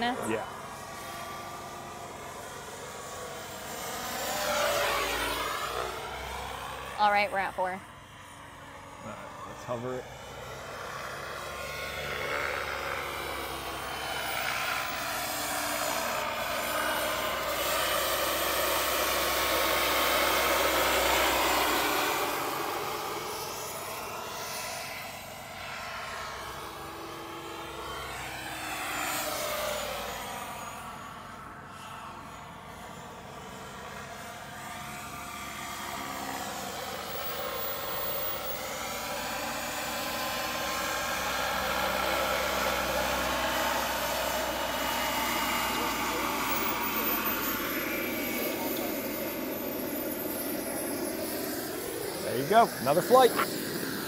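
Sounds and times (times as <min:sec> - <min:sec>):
model helicopter turbine whine: 0:00.0 - 0:54.0.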